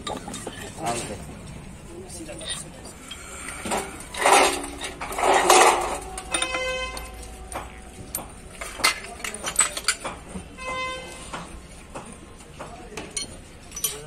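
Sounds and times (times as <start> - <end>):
steel parts clattering in metal pan: 3.7 - 7.2, 8.1 - 10.1, 13.1 - 14.0.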